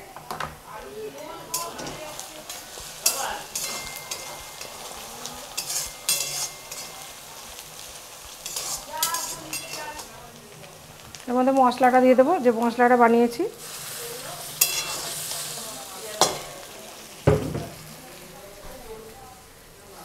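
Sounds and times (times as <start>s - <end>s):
onions sizzling in oil: 0.0s - 20.0s
metal spatula scraping pan: 1.2s - 10.2s, 13.6s - 15.5s.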